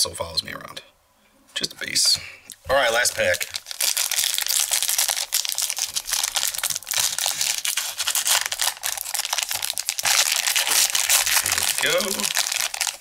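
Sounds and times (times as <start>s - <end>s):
foil wrapper crinkling and tearing: 2.8s - 13.0s.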